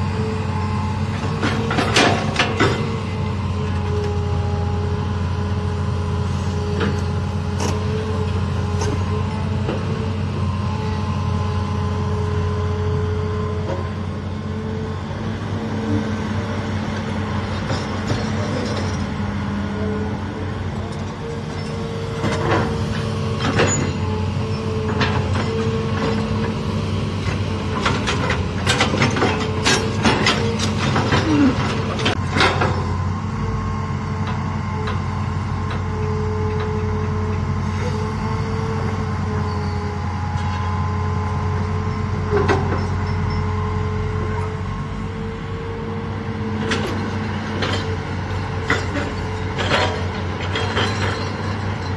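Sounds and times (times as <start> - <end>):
excavator diesel engine running: 0.0 - 51.9.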